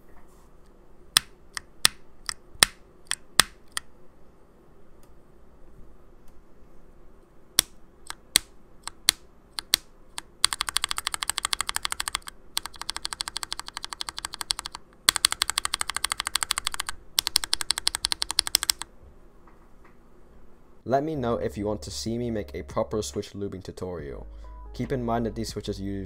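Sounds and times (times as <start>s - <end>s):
mechanical keyboard typing: 8.0s - 18.9s.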